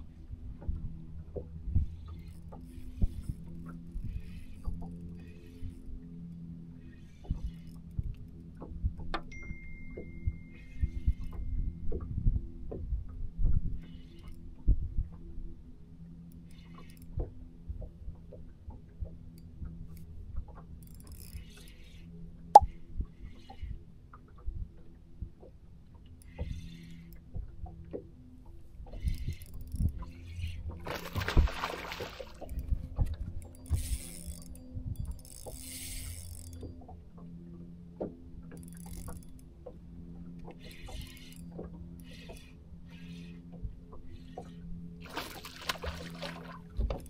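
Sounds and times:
fishing reel click: 33.4s - 36.7s, 38.6s - 39.5s.

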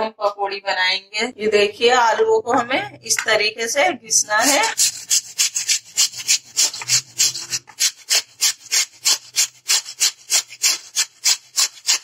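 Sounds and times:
potato grating on metal grater: 4.2s - 12.0s.

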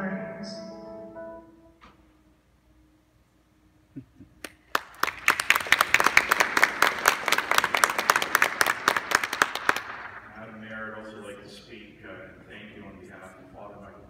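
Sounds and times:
audience applauding: 4.4s - 10.4s.

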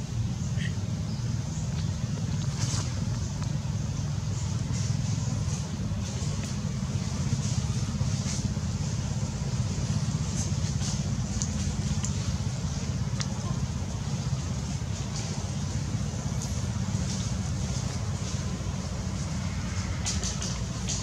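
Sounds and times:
light ticks: 10.8s - 12.3s, 13.1s - 13.4s.

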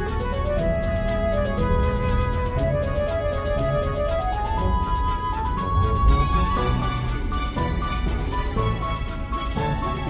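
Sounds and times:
instrumental background music: 0.0s - 10.0s.

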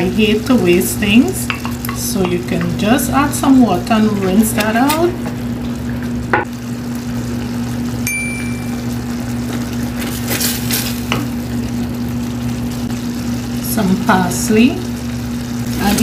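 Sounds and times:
sauce bubbling in a skillet: 5.2s - 8.1s, 8.7s - 16.0s.

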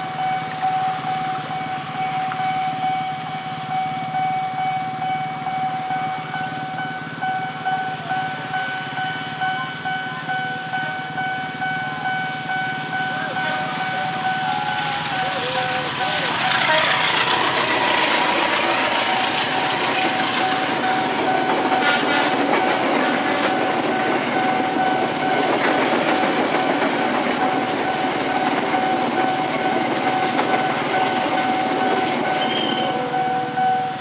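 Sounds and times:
level crossing alarm tone: 0.0s - 34.0s
train wheels clattering on rail: 13.3s - 34.0s.

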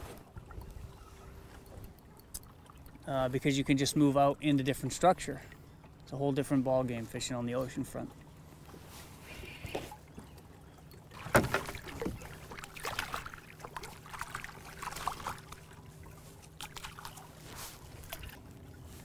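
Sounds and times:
fish splashing at water surface: 11.1s - 15.8s, 16.5s - 18.5s.

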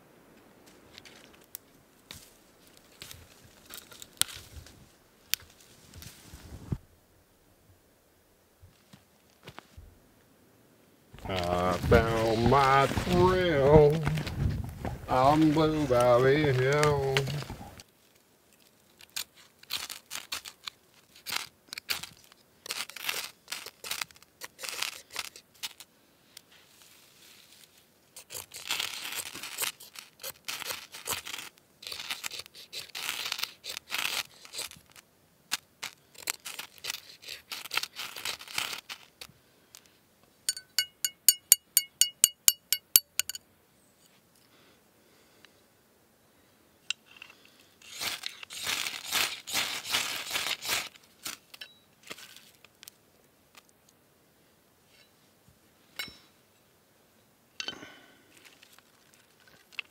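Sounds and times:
knife scraping ferrocerium rod: 40.5s - 43.4s
sharp ringing metallic ticks: 40.5s - 43.4s.

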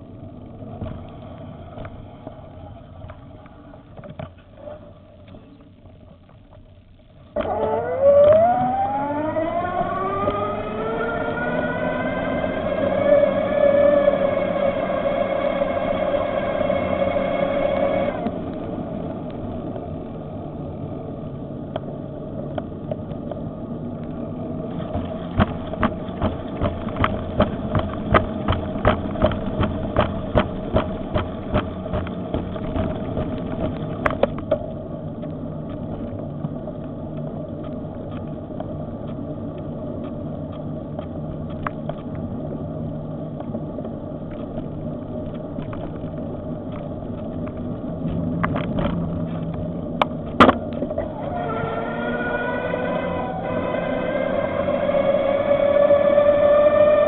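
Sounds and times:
rolling and wind rumble: 0.0s - 57.0s
electric bicycle motor whining: 7.4s - 22.5s, 50.9s - 57.0s.

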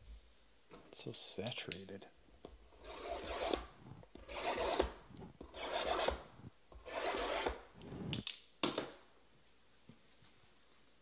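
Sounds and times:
cardboard boxes scraping on table: 2.8s - 8.1s.

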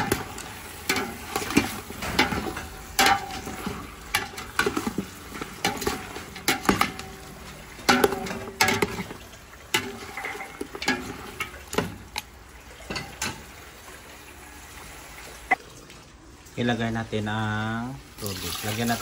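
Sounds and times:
metal spatula scraping a pot: 0.0s - 12.0s
frying sizzle: 0.0s - 19.0s.

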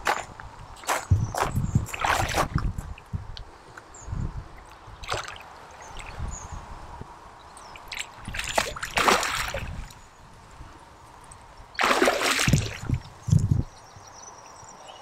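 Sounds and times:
water sloshing and splashing: 0.8s - 3.1s, 4.6s - 6.3s, 7.7s - 10.0s, 11.8s - 13.1s.

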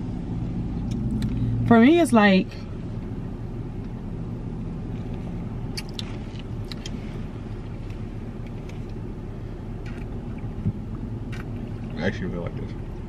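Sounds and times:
car engine idling hum: 0.0s - 13.0s.

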